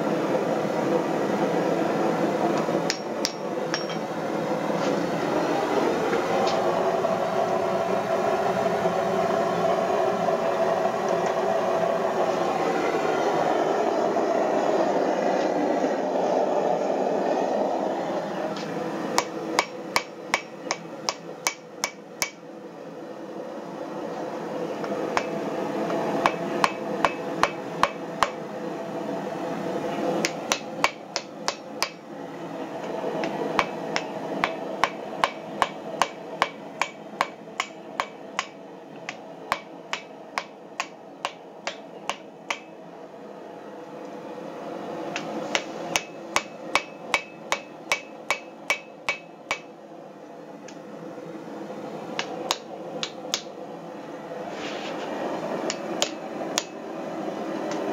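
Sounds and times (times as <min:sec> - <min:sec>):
hammer striking hot metal on anvil: 0:02.9 - 0:04.1, 0:19.2 - 0:22.4, 0:26.2 - 0:28.4, 0:30.2 - 0:32.0, 0:33.6 - 0:42.7, 0:45.5 - 0:49.7.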